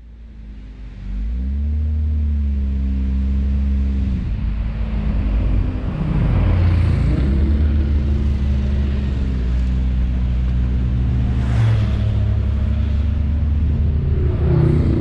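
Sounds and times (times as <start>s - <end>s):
car engine running at low revs: 0.0s - 15.0s
road and tyre noise: 0.0s - 15.0s.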